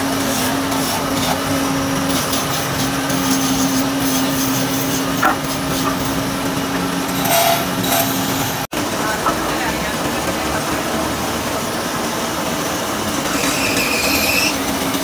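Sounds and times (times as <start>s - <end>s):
wood lathe motor hum: 0.0s - 9.4s, 13.2s - 15.0s
spinning wooden spindle: 2.1s - 6.3s, 7.1s - 8.5s.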